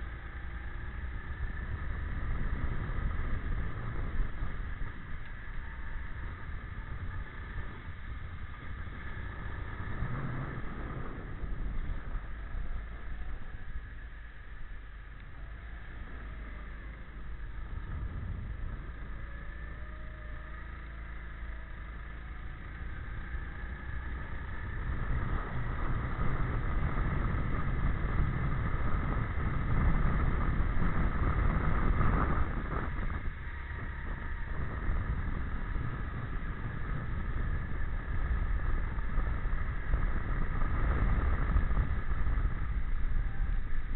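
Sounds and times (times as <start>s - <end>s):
go-kart engine running: 0.0s - 43.9s.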